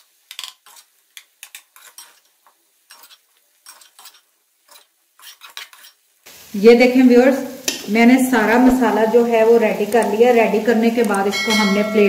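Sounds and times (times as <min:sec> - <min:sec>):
spoon scraping a metal pot: 0:00.0 - 0:06.0.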